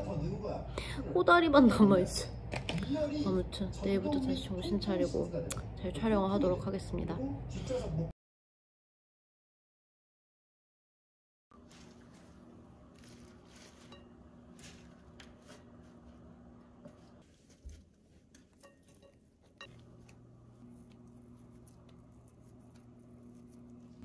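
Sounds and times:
utensils clinking ceramic bowls: 13.0s - 15.7s, 18.3s - 20.2s.

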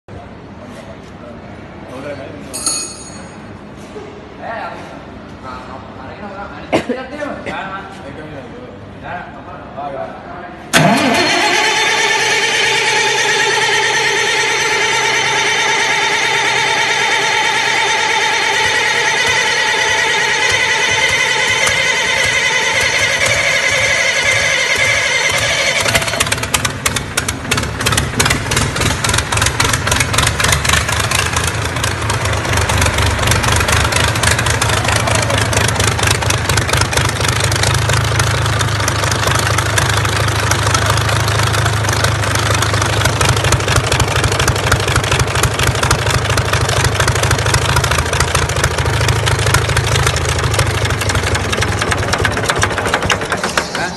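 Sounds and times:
diesel engine rumbling: 7.5s - 53.9s
starter motor whining: 10.8s - 53.9s
valve train clatter: 17.5s - 53.9s.

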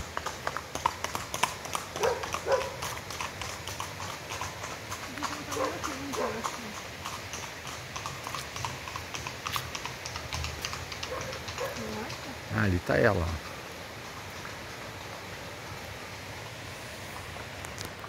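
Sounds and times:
footsteps clicking on a path: 0.0s - 12.2s.

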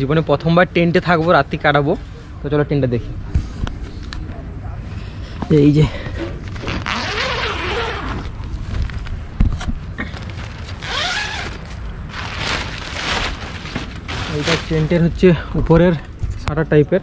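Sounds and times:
rustling noise bursts: 6.5s - 15.2s.

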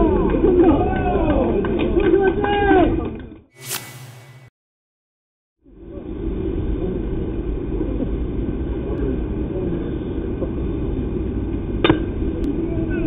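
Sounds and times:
low outdoor rumble: 5.7s - 13.0s.

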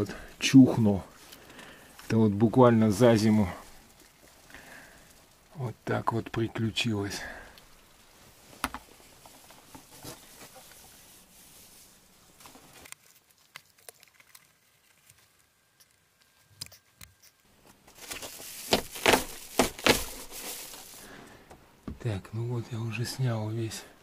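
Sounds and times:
foam insulation rustling and tearing: 8.0s - 15.6s, 17.7s - 21.2s.

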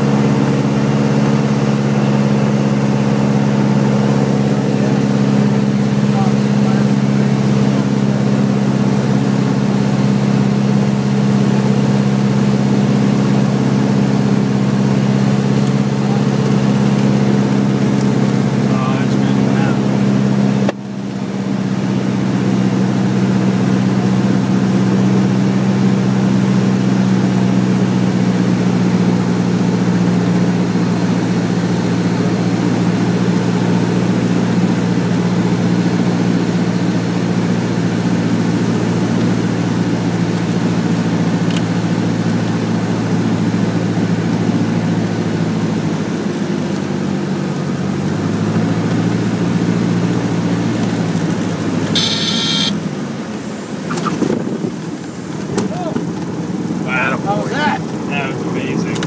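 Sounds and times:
propeller plane engine droning: 0.0s - 59.0s.

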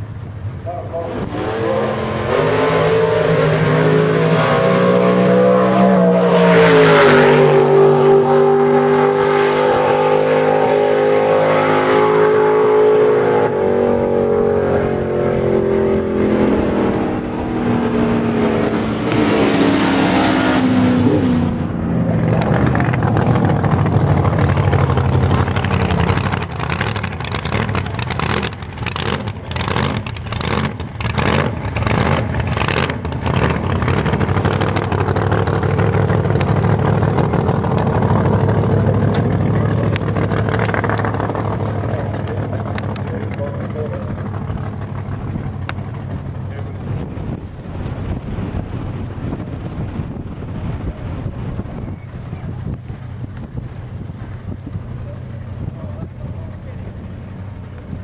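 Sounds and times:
drag-racing car engine full throttle: 0.0s - 58.0s
pickup engine crackling beat: 22.2s - 47.3s.

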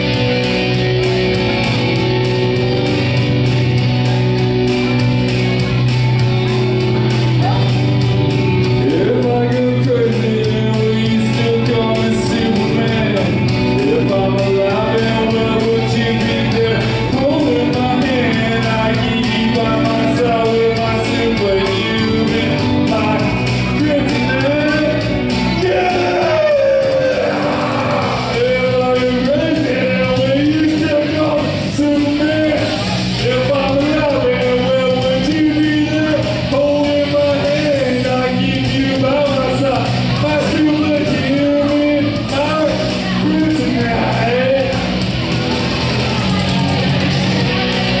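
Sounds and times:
loud rock backing music: 0.0s - 48.0s
man singing into a microphone: 8.8s - 44.9s.

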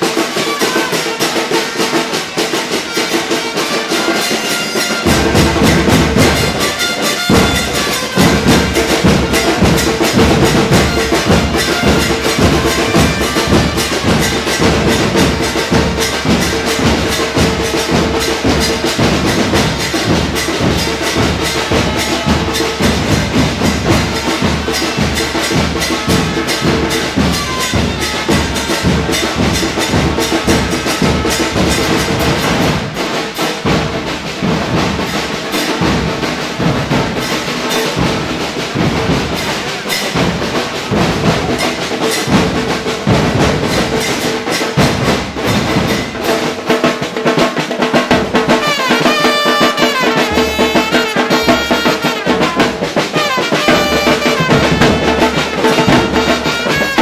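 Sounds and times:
trumpet playing: 0.0s - 32.5s, 48.4s - 57.0s
bass and snare drums pounding: 0.0s - 57.0s.

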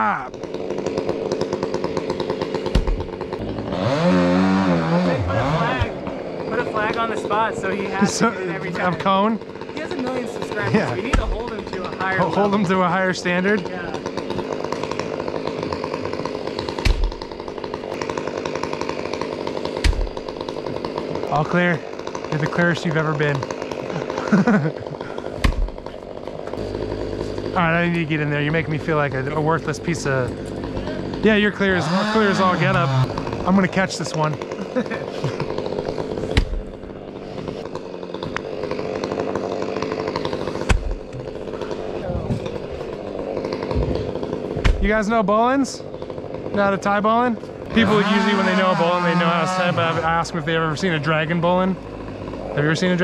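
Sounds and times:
chainsaw engine running: 0.0s - 53.0s
heavy thumps: 2.6s - 3.7s, 10.9s - 11.7s, 16.6s - 17.5s, 19.8s - 20.9s, 25.3s - 27.4s, 35.4s - 39.0s, 40.6s - 44.9s
heavy thump: 44.6s - 44.8s.

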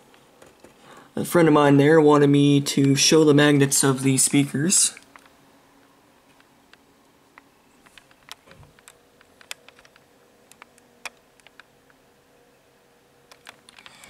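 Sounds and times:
faint steady hum: 0.0s - 14.0s
handling clicks and ticks: 7.4s - 11.7s.

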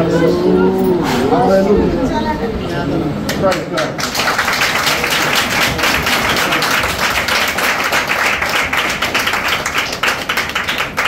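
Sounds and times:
people clapping: 3.3s - 11.0s.

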